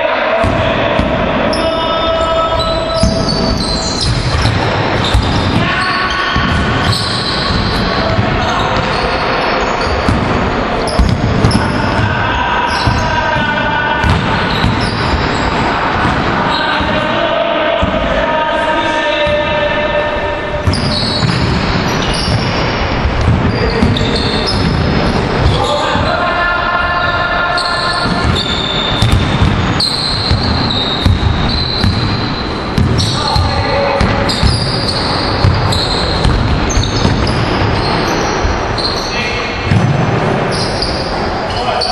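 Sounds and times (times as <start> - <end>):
sneaker squeaks: 0.4 - 10.2, 10.8 - 18.0, 18.8 - 26.1, 26.9 - 41.9
basketball bouncing on wooden floor: 3.0 - 5.7, 6.4 - 9.0, 9.9 - 15.4, 20.6 - 26.1, 28.0 - 38.9.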